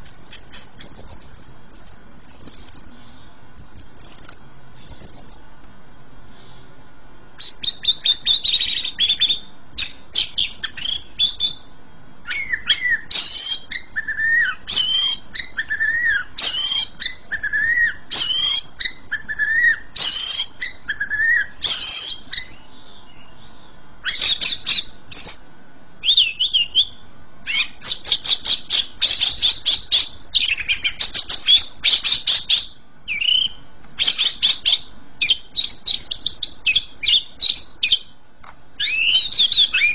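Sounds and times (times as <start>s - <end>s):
bird rattling trills: 0.0s - 3.0s, 3.6s - 5.5s
bird whistling song: 0.0s - 5.5s, 7.4s - 38.1s, 38.8s - 39.9s.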